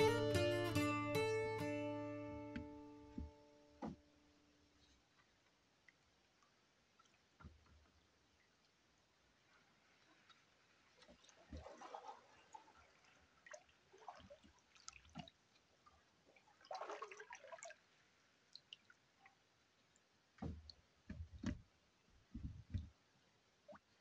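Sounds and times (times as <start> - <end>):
water dripping from paddle: 5.1 - 9.2, 10.0 - 21.6
soft low thumps: 22.3 - 23.0.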